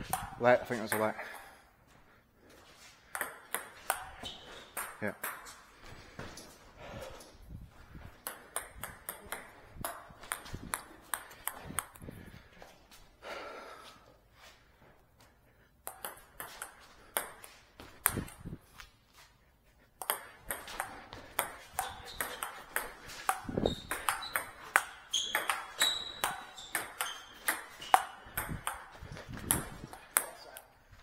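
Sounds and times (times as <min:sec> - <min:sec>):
table tennis ball clicking: 0:08.2 - 0:12.0, 0:20.0 - 0:30.7.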